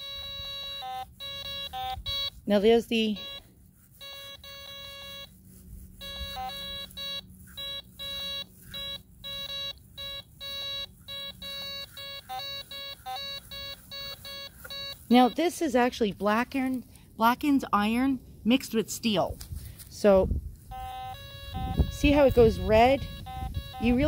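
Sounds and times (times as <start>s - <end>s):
metal detector beeping: 0.0s - 17.4s, 20.7s - 24.0s.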